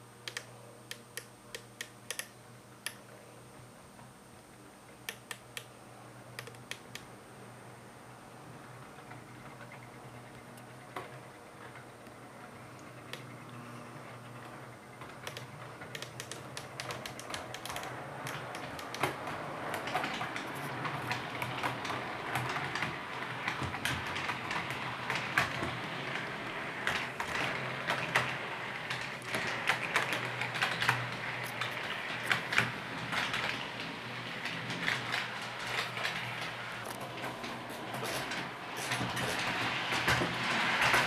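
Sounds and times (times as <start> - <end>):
model train wheels clicking: 15.0 - 41.0.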